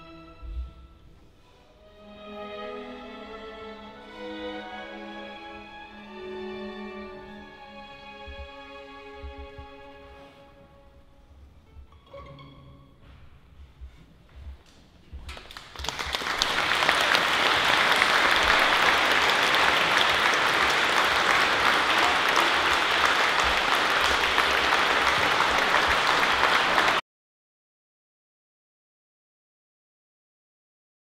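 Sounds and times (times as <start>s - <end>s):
audience applause: 15.3s - 27.0s.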